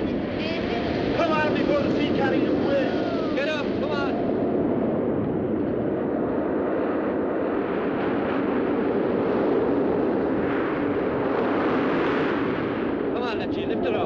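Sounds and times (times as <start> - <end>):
surf breaking on rocky shore: 0.0 - 4.4.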